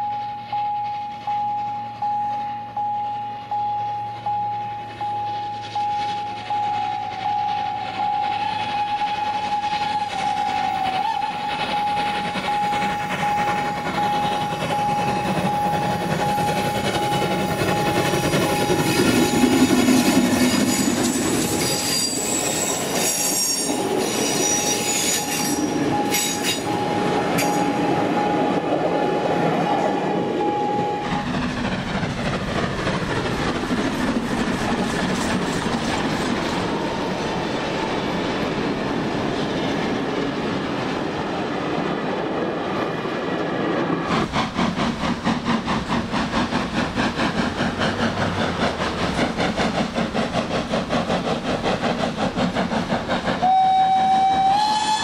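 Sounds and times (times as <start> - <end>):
steady high tone: 0.0 - 31.5
steam train passing: 0.0 - 55.0
wheels squealing on curve: 18.5 - 27.6.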